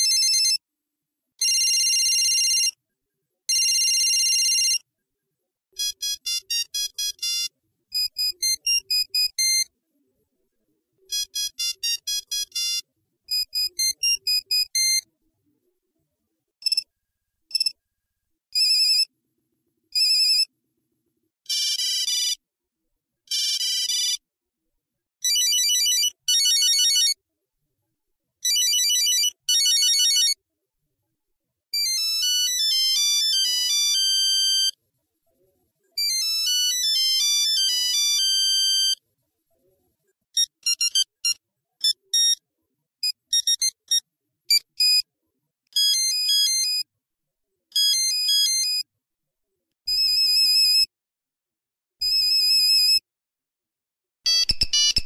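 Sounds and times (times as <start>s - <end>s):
mobile phone ringtones: 0.0s - 0.6s, 1.4s - 2.8s, 3.5s - 4.8s, 5.8s - 9.7s, 11.1s - 15.1s, 21.5s - 22.4s, 23.3s - 24.2s, 25.2s - 27.2s, 28.4s - 30.4s, 31.8s - 34.8s, 36.0s - 39.0s, 40.4s - 42.4s, 43.0s - 45.1s, 45.8s - 46.8s, 47.8s - 48.9s, 54.3s - 55.0s.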